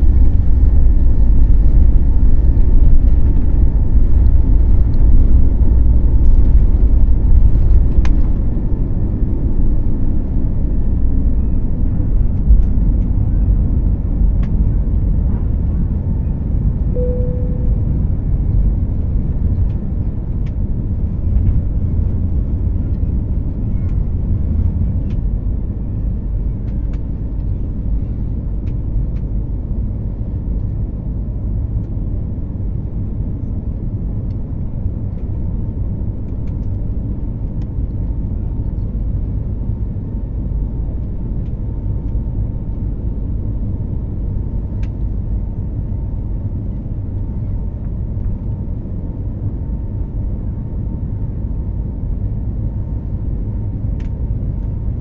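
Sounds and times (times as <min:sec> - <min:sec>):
jet engines rumbling: 0:00.0 - 0:55.0
faint steady tone: 0:16.9 - 0:18.1.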